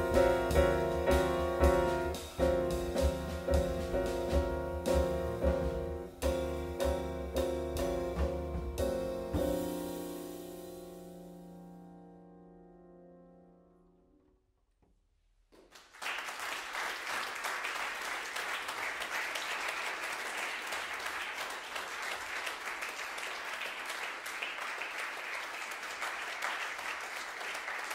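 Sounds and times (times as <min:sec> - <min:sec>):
piano notes: 0:00.0 - 0:14.3
audience applause: 0:15.6 - 0:27.9.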